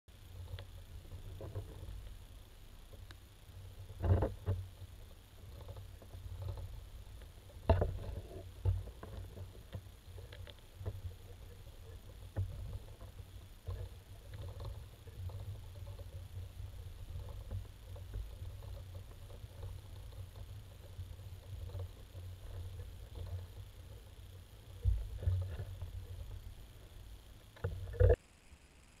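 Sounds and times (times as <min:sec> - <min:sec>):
underwater rumble of moving water: 0:00.1 - 0:28.2.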